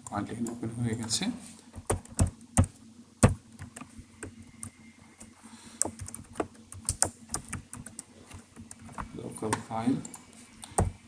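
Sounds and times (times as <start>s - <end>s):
keyboard typing: 1.8s - 9.0s.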